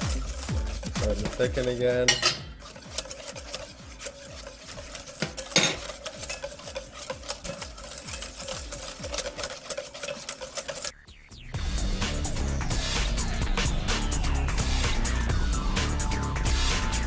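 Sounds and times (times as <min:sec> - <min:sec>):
whisk knocking bowl: 0:00.0 - 0:10.9
whisk beating in metal bowl: 0:00.0 - 0:11.0.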